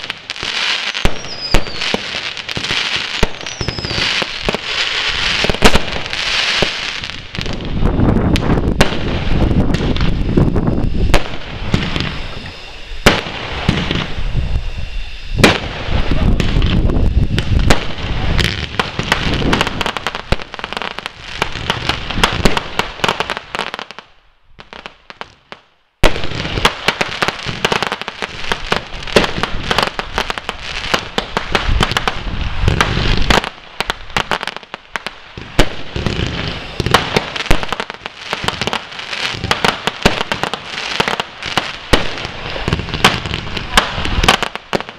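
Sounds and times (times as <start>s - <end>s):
fireworks crackling: 0.0s - 44.9s
firework shells bursting: 35.3s - 44.9s.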